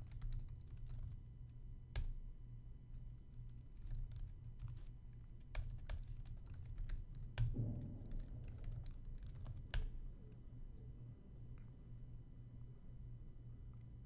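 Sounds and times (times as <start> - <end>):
computer keyboard typing: 0.0 - 1.2, 3.2 - 10.4.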